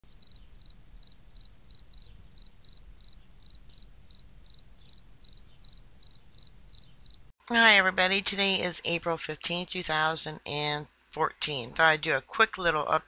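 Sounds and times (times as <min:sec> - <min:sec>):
cricket chirping: 0:00.1 - 0:07.3.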